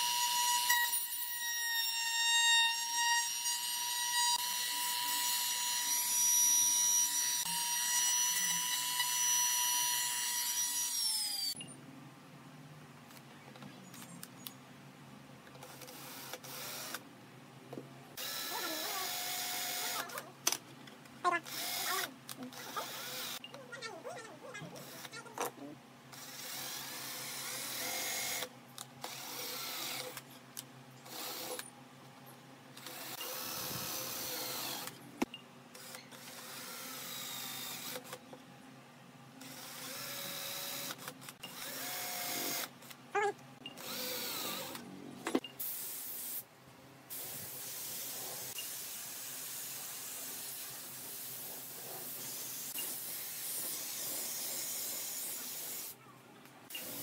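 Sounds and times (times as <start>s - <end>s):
cordless drill boring into wood: 0.0s - 11.6s, 15.7s - 17.0s, 18.2s - 20.2s, 21.4s - 23.4s, 24.8s - 25.2s, 26.1s - 30.2s, 31.0s - 31.6s, 32.8s - 35.0s, 35.8s - 38.2s, 39.4s - 42.7s, 43.8s - 44.8s.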